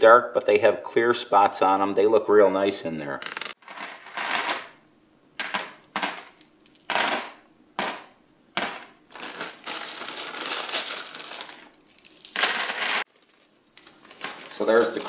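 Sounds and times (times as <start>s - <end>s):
crystals clattering in tray: 3.2s - 4.7s, 8.6s - 15.0s.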